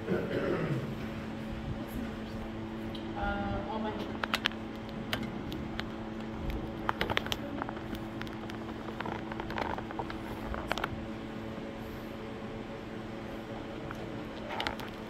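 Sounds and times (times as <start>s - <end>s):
small clicks and knocks: 4.2s - 11.0s.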